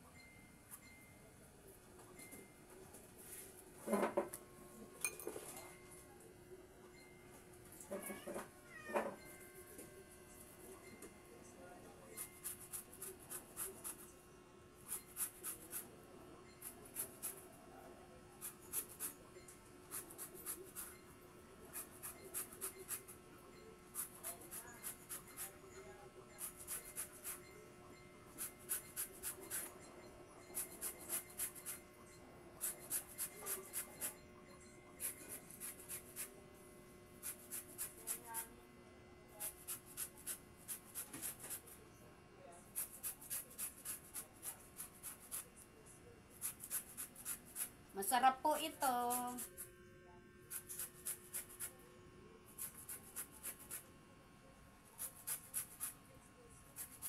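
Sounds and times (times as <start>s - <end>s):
fruit rasping on a grater: 35.0s - 36.3s, 42.8s - 45.5s, 46.4s - 47.8s, 50.4s - 51.8s, 52.5s - 53.9s, 55.0s - 56.0s
fruit rasping on a hand grater: 50.5s - 51.8s.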